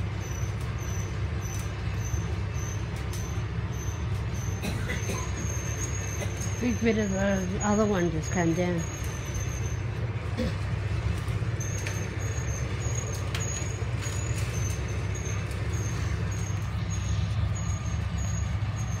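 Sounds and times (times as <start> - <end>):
large engine droning: 0.0 - 19.0.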